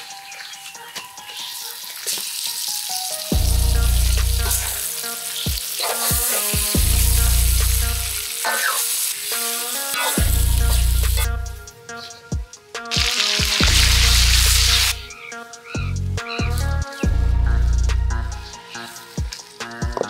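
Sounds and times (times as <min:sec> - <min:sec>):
chicken sizzling in a wok: 0:00.0 - 0:11.3, 0:13.0 - 0:15.0
background music with deep bass: 0:00.0 - 0:20.0.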